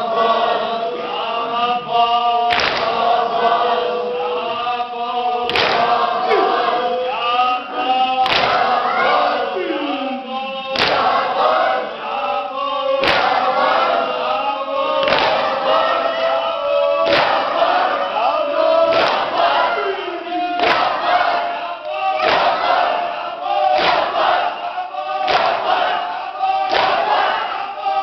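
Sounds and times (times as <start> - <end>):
men singing a lament: 0.0 - 28.0
unison chest slaps: 2.5 - 3.0, 5.5 - 5.9, 8.2 - 8.7, 10.8 - 11.2, 13.0 - 13.4, 15.0 - 15.5, 17.0 - 17.5, 18.9 - 19.3, 20.6 - 21.2, 22.2 - 22.8, 23.7 - 24.2, 25.2 - 25.7, 26.7 - 27.2.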